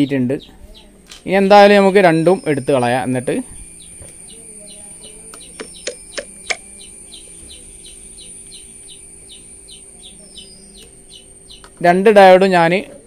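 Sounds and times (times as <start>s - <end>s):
bird chirping: 0.0s - 13.0s
faint high whine: 0.0s - 13.0s
low hum: 0.0s - 13.0s
sharp clicks: 5.3s - 6.7s.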